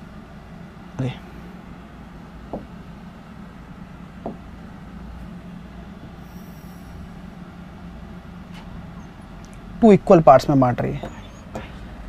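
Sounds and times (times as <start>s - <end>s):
low background hum: 0.0s - 12.0s
soft taps: 2.5s - 2.8s.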